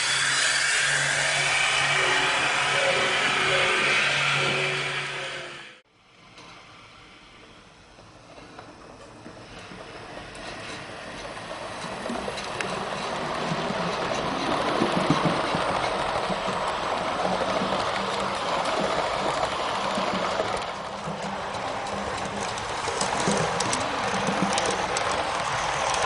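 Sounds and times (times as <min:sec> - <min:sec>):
model train wheels rattling on rails: 0:08.0 - 0:26.0.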